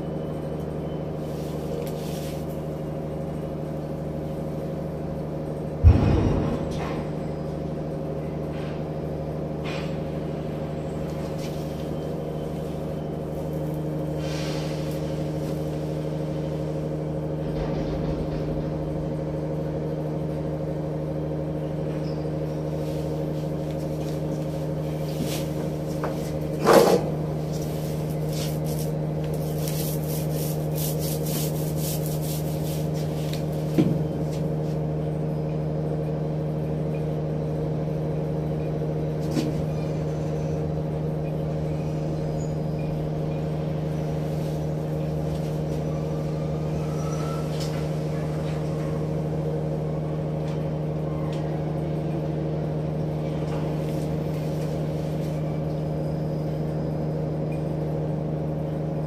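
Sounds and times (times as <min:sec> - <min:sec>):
ship machinery drone: 0:35.0 - 0:59.0.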